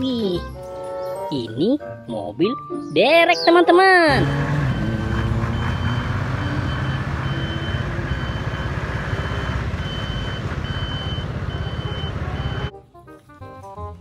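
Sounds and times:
truck engine passing: 4.0 - 12.7
electronic warning beeper: 4.1 - 12.7.

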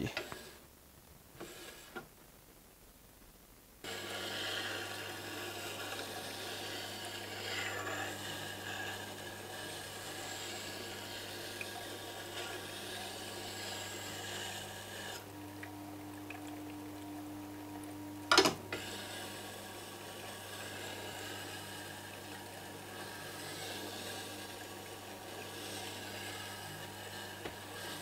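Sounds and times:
steel grinding on wheel hiss: 1.4 - 2.0, 3.8 - 15.3, 18.7 - 28.0
sharpening machine humming: 3.8 - 28.0.

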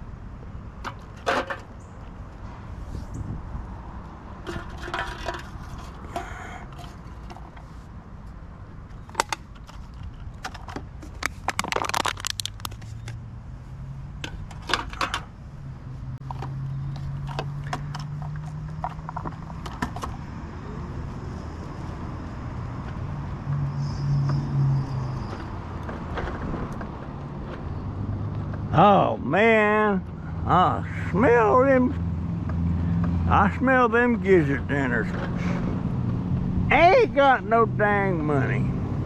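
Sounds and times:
metallic clattering and jingling: 4.4 - 6.0.

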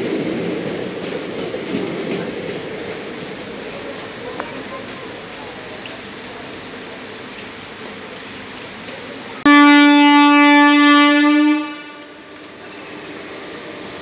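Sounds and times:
train horn blast: 9.4 - 12.3.

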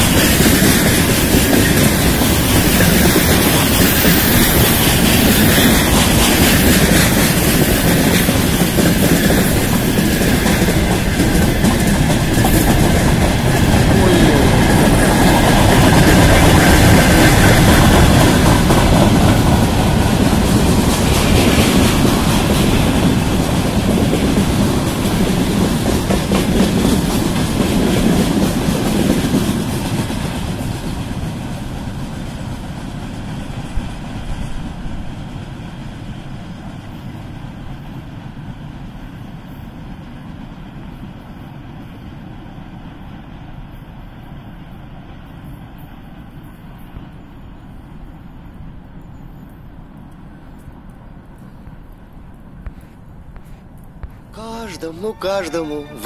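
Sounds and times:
freight train wheels clattering: 0.0 - 33.4.

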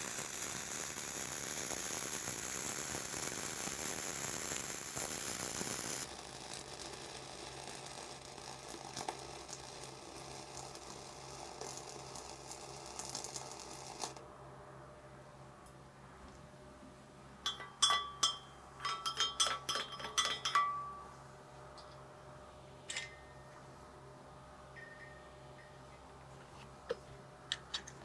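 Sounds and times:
sharp welding cracks: 0.0 - 14.2
welding arc crackling: 0.0 - 14.2.

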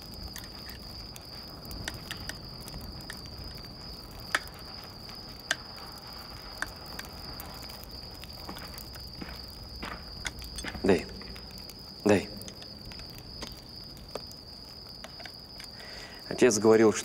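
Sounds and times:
crickets chirring: 0.0 - 17.0
sharp clicks: 1.8 - 2.4.

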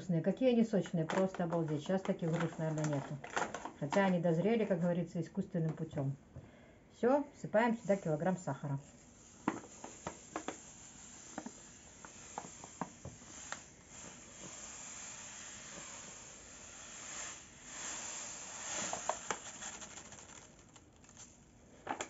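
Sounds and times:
sugar pouring hiss: 7.6 - 21.8.

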